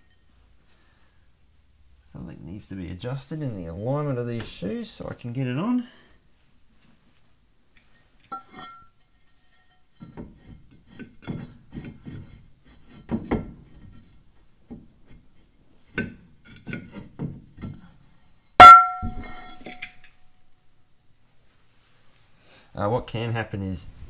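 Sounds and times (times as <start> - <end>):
loud metallic clang: 18.6 - 19.9.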